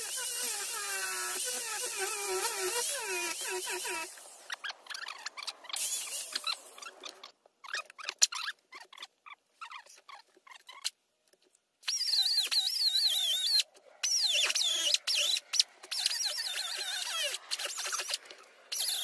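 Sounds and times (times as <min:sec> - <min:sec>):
power carving tool whining: 0:00.0 - 0:04.4
clicks and scrapes: 0:13.5 - 0:19.0.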